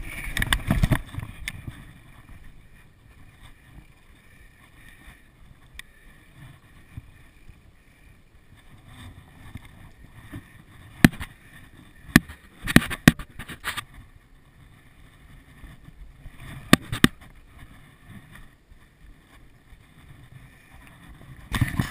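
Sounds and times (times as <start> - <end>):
wind on microphone: 0.0 - 4.0, 8.6 - 21.9
bike tyres rumbling on dirt: 0.0 - 13.9, 19.2 - 21.9.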